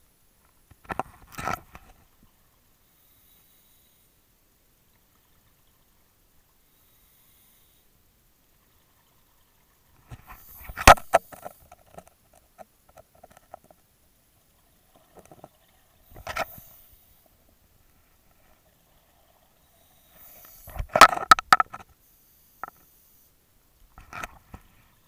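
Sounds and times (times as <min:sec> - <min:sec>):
bubbly clicks and gurgles: 0:14.6 - 0:16.8.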